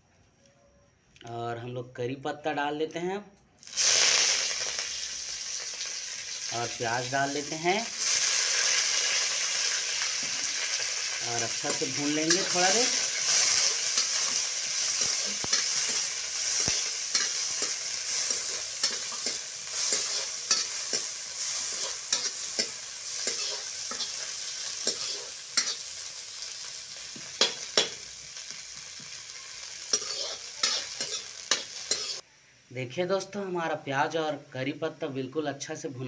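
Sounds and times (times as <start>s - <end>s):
onions sizzling in hot oil: 3.6s - 32.2s
metal spatula scraping pan: 11.6s - 25.9s, 29.9s - 32.2s.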